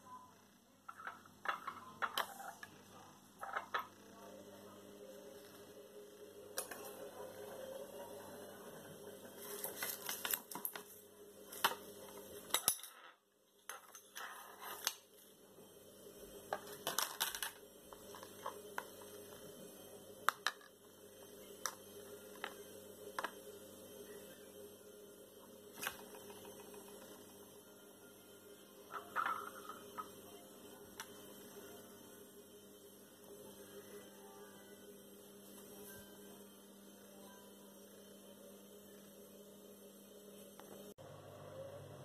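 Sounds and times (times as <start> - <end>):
steady low hum: 0.0 - 13.6.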